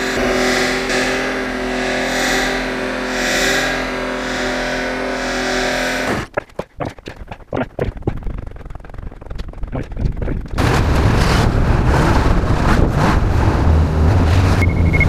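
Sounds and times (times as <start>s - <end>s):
snowmobile engine running: 0.0s - 15.0s.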